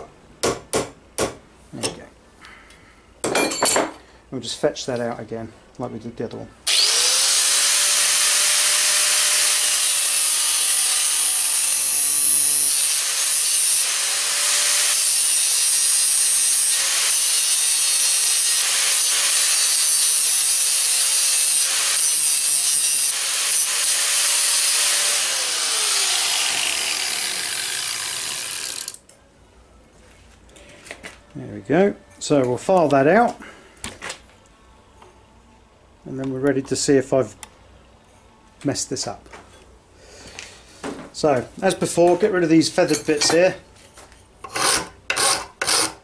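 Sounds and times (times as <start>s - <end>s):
angle grinder cutting steel: 6.7s - 29.0s, 44.5s - 46.0s
grinder winding down: 6.7s - 29.0s.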